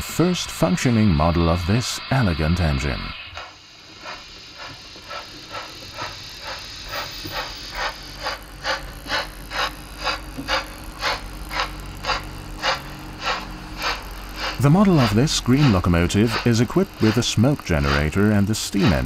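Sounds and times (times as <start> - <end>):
model train steam chuffs: 0.0 - 19.0
low steady hum: 6.9 - 19.0.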